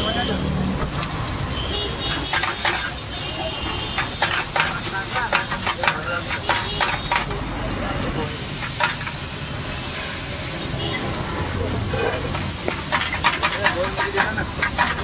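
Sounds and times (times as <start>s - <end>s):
frying sizzle: 0.0s - 15.0s
metal spatula scraping frying pan: 2.0s - 7.4s, 11.8s - 15.0s.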